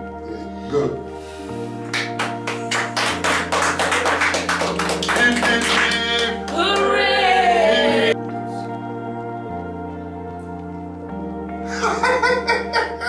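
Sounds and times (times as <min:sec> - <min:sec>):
background music: 0:00.0 - 0:13.0
group clapping in rhythm: 0:01.8 - 0:08.2
voices cheering: 0:02.7 - 0:08.2.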